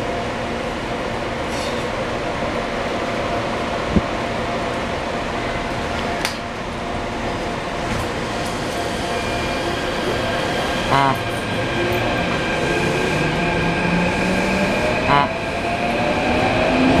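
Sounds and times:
train air conditioning hum: 0:00.0 - 0:17.0.

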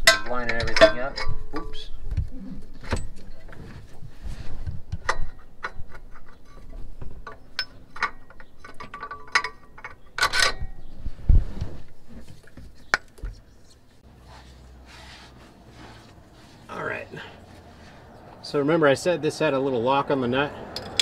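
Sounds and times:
metal rattle: 0:00.0 - 0:02.0, 0:05.0 - 0:10.9, 0:20.8 - 0:21.0
small metal clicks: 0:20.8 - 0:21.0.

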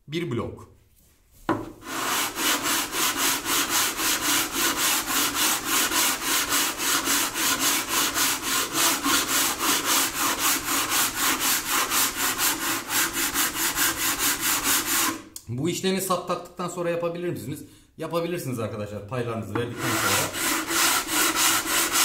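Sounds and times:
sandpaper rubbing on wood: 0:01.8 - 0:15.2, 0:19.7 - 0:22.0.

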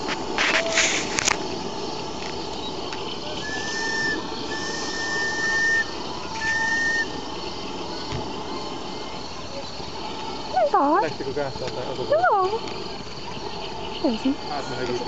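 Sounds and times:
hiss of steam: 0:00.0 - 0:15.0
steam whistle blasts: 0:03.4 - 0:07.3.

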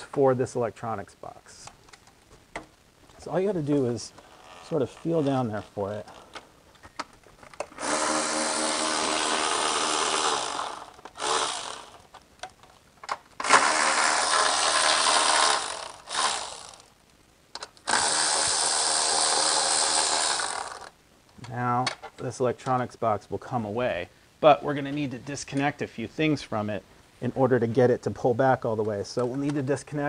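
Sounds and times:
cordless ratchet motor whine: 0:07.8 - 0:12.0, 0:13.4 - 0:16.9, 0:17.9 - 0:20.9.

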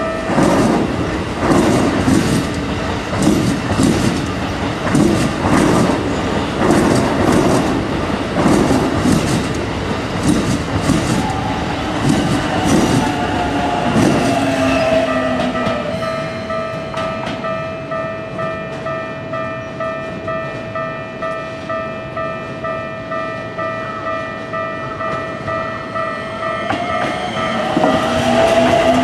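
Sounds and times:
electric train passing: 0:00.0 - 0:29.0
level-crossing alarm ringing: 0:11.3 - 0:29.0.

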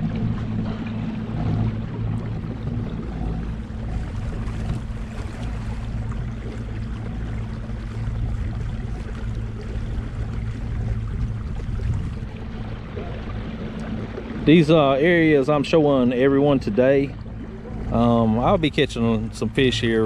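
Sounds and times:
boat motor humming: 0:00.0 - 0:20.0
water noise: 0:00.0 - 0:20.0
wind noise: 0:10.9 - 0:12.4.

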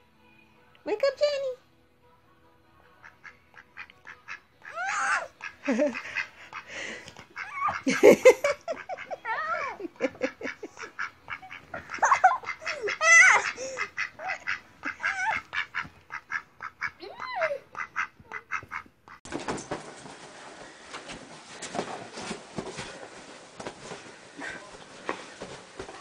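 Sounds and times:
duck quacking: 0:03.0 - 0:06.8, 0:10.2 - 0:19.2
rustling room noise: 0:17.7 - 0:26.0.

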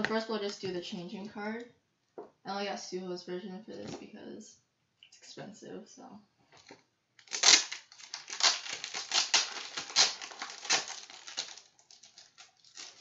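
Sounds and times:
plastic sleeve crinkling: 0:06.5 - 0:13.0.

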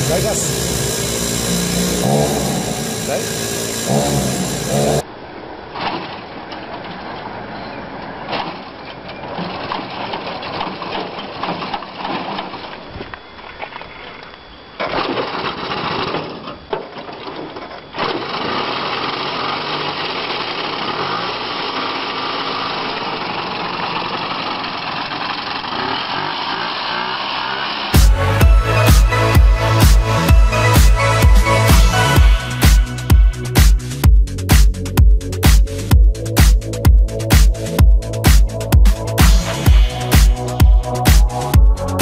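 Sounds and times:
small engine running: 0:00.0 - 0:05.1, 0:14.8 - 0:16.7, 0:17.8 - 0:34.7, 0:35.4 - 0:42.0.

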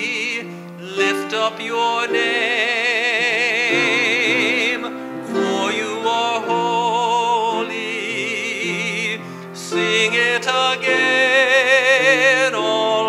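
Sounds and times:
man singing with vibrato: 0:00.0 - 0:13.0
sustained instrumental chords: 0:01.2 - 0:11.5.

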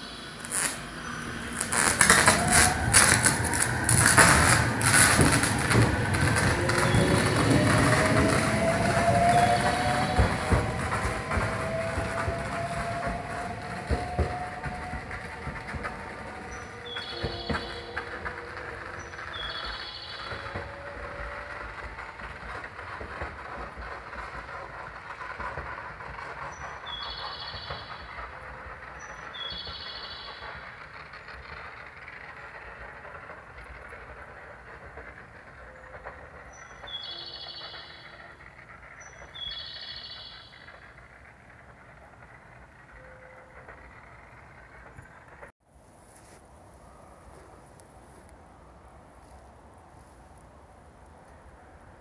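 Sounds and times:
train motor whine: 0:00.0 - 0:45.5
pantograph arcing crackles: 0:00.4 - 0:12.2.

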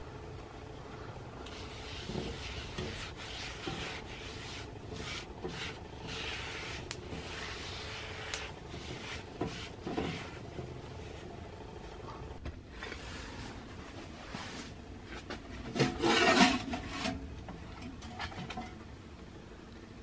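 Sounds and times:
skillet scraping across stove top: 0:01.5 - 0:11.2, 0:15.7 - 0:17.2
towel rubbing a skillet: 0:01.5 - 0:11.3, 0:15.8 - 0:17.2.

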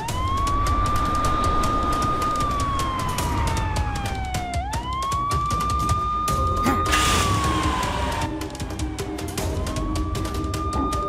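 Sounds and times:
police siren wailing: 0:00.0 - 0:11.0.

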